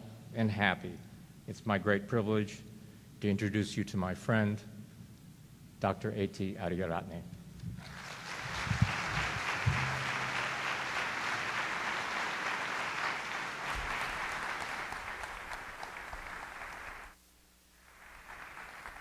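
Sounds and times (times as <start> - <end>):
audience applauding: 7.8 - 17.2, 17.8 - 19.0.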